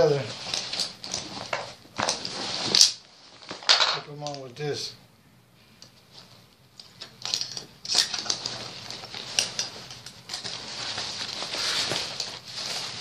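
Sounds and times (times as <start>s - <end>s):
backpack fabric rustling: 0.0s - 3.6s, 8.0s - 13.0s.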